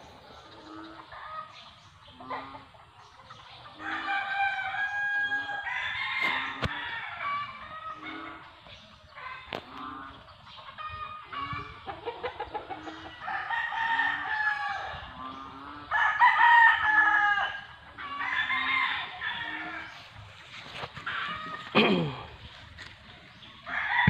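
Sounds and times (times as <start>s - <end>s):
chickens clucking: 0.0s - 16.2s, 16.8s - 24.0s
roosters crowing: 3.7s - 8.5s, 12.8s - 22.5s, 23.4s - 24.0s.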